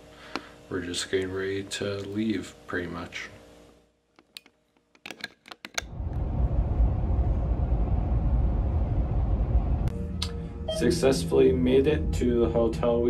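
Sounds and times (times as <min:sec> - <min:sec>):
camera handling clicks and knocks: 0:04.2 - 0:05.8.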